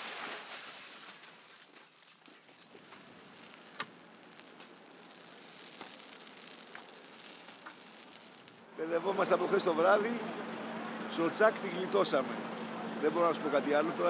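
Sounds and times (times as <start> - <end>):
burning brush crackling: 0.0 - 8.7
fire pops: 1.2 - 8.7
fire hiss: 2.7 - 8.7.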